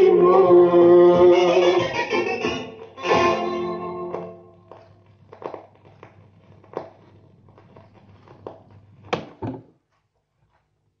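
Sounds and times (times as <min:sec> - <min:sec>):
stylus clicks and crackle: 0:04.6 - 0:09.2.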